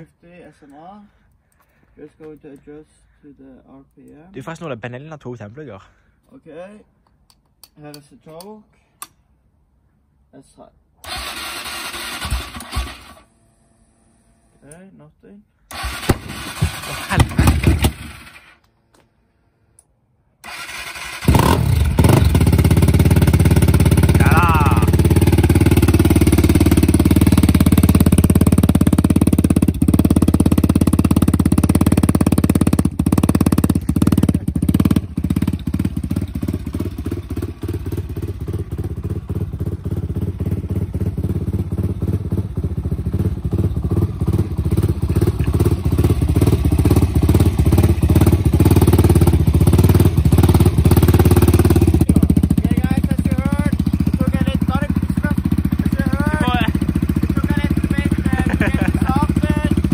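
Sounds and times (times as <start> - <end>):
motorcycle engine starting and idling: 11.0 - 14.8, 15.7 - 18.6, 20.4 - 59.9.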